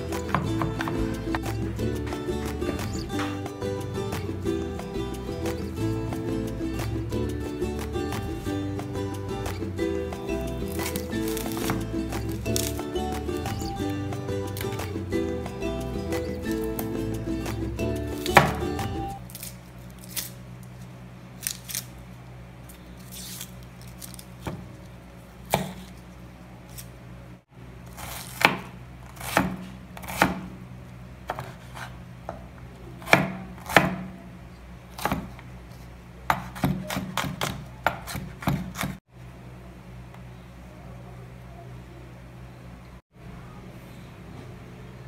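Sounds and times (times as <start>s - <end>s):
knife chopping on wooden board: 0.2s - 3.4s, 18.2s - 19.0s, 25.5s - 25.9s, 28.0s - 30.5s, 33.0s - 34.1s, 35.0s - 35.4s, 36.3s - 39.0s.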